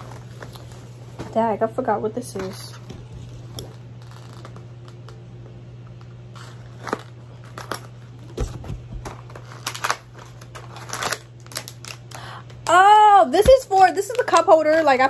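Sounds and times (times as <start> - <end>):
packaging crackling: 3.4 - 5.2, 6.0 - 15.0.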